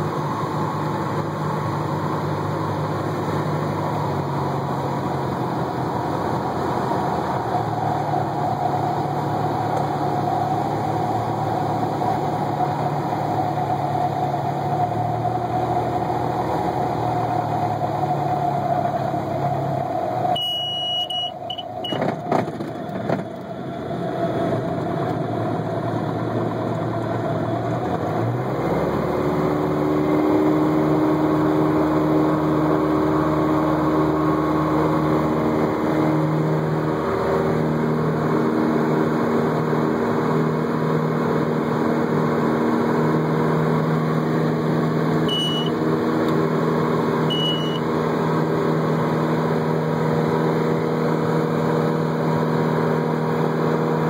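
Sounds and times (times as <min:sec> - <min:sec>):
propeller aircraft engine from cabin: 0:00.0 - 0:54.0
short high beeps: 0:20.4 - 0:22.0, 0:45.3 - 0:45.8, 0:47.3 - 0:47.8.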